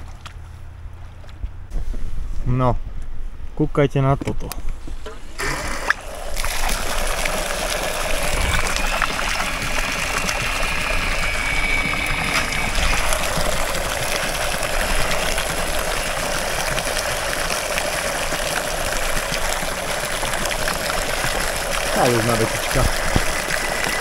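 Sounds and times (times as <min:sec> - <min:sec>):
thin motor whine: 0:04.8 - 0:17.0, 0:21.8 - 0:24.0
water jet splashing: 0:05.2 - 0:24.0.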